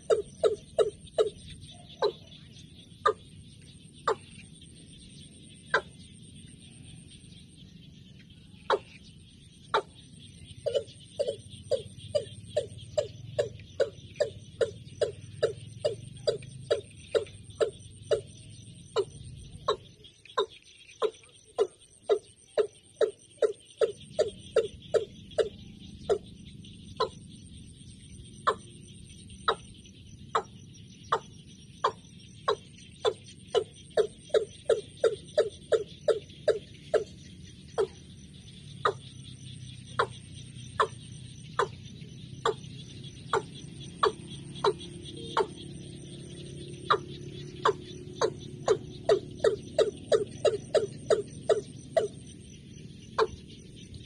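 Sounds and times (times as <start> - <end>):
insects trilling: 0.0 - 54.0
bird calling sharp notes: 30.4 - 52.4.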